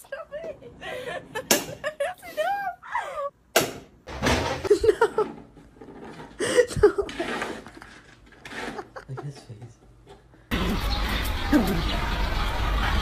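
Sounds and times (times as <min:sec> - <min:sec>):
person chuckling: 0:04.6 - 0:05.4, 0:06.4 - 0:07.9, 0:08.5 - 0:09.5.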